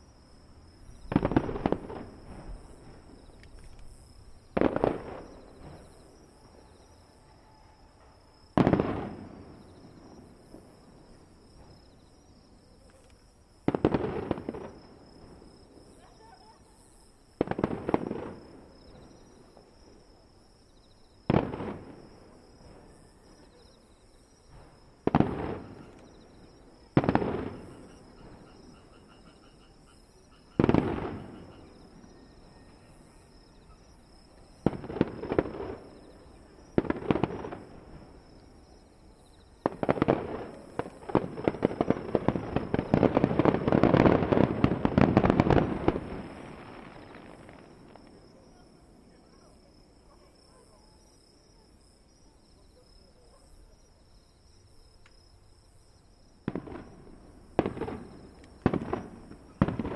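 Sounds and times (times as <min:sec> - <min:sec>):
crackling firework volley: 0:00.0 - 0:59.9
firework shells booming: 0:01.0 - 0:03.2, 0:04.0 - 0:06.2, 0:08.0 - 0:10.8, 0:24.5 - 0:26.0, 0:39.6 - 0:48.3, 0:56.4 - 0:59.9.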